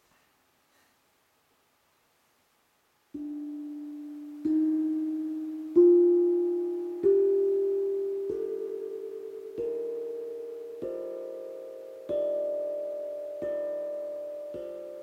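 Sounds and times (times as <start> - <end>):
tongue drum notes: 3.2 - 15.0.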